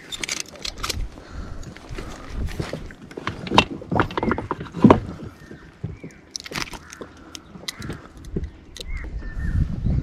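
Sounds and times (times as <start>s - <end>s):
knocks and thumps: 2.6s - 6.8s.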